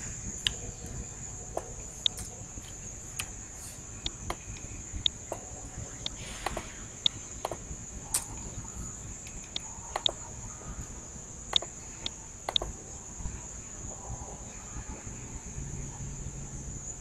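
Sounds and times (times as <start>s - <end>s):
high-pitched whine: 0.0s - 17.0s
computer mouse clicking: 4.0s - 8.5s, 9.2s - 10.2s, 11.5s - 12.7s.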